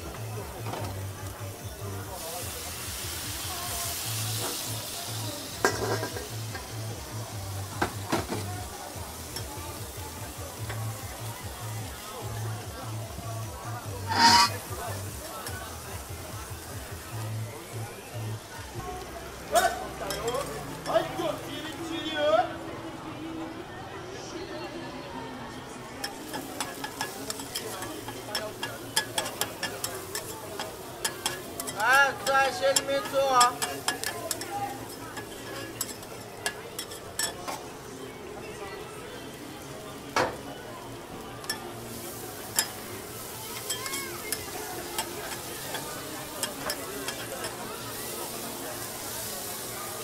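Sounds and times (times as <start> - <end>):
lobster sizzling on griddle: 0.0 - 22.4, 25.8 - 50.0
metal cookware clanking on steel: 5.6 - 6.8, 14.1 - 14.7, 19.6 - 21.0, 26.0 - 37.7, 41.4 - 49.7
metal spatula clacking on griddle: 5.6 - 6.8, 14.1 - 14.7, 19.6 - 21.1, 26.0 - 37.7, 41.4 - 48.2.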